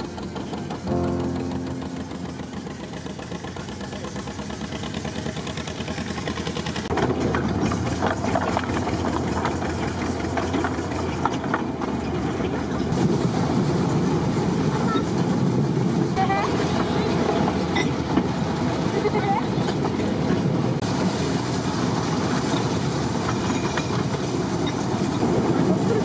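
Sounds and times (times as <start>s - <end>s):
locomotive engine hum: 0.0s - 26.0s
train wheels clicking on track: 0.0s - 26.0s.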